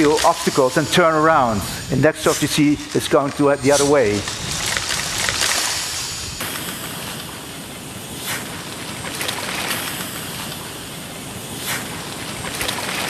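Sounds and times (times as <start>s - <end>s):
wind rushing hiss: 0.1s - 12.5s.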